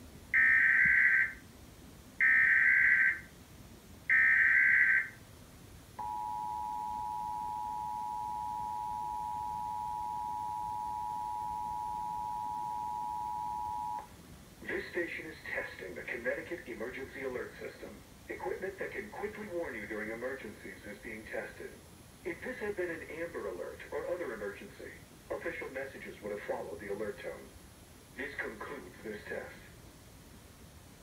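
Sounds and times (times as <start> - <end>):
data tone bursts: 6.0 - 14.1
steady two-tone alert signal: 6.0 - 14.1.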